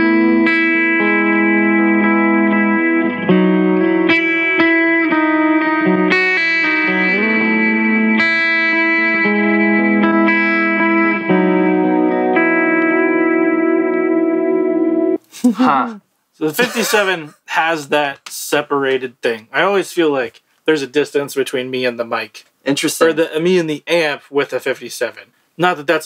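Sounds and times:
clean electric guitar: 0.0 - 15.9.

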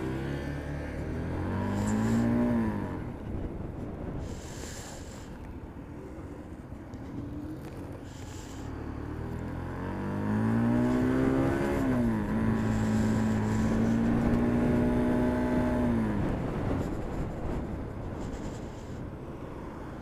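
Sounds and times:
motorcycle engine pulling away: 0.0 - 3.3, 7.4 - 17.4.

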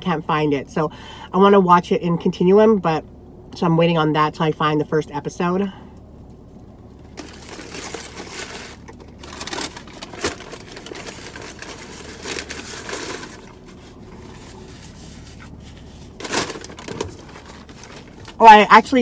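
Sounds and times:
paper wrapper crinkling: 7.1 - 18.4.

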